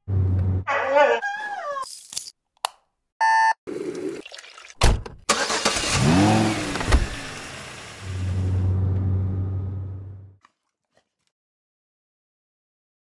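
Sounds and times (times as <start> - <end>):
car engine starting and revving: 5.3 - 10.3.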